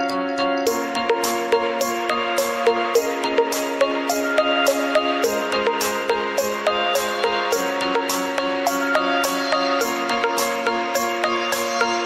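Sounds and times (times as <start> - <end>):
instrumental music with plucked notes: 0.0 - 12.0.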